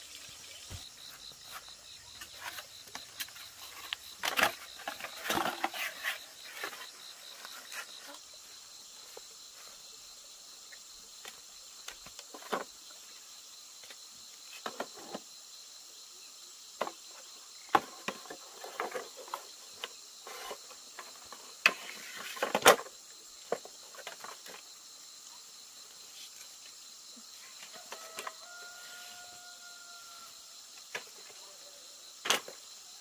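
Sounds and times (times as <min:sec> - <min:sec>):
rustles: 0:00.0 - 0:09.8
insects chirring: 0:00.0 - 0:33.0.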